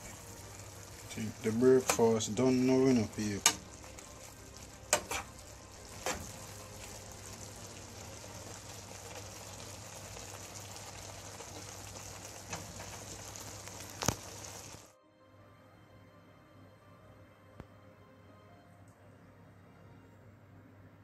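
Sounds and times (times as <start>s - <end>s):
food sizzling in frying pan: 0.0s - 14.9s.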